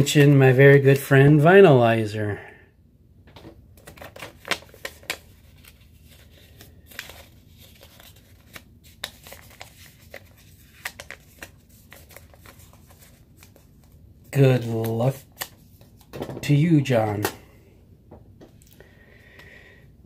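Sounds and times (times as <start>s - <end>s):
paper rustling and crinkling: 3.8s - 17.2s.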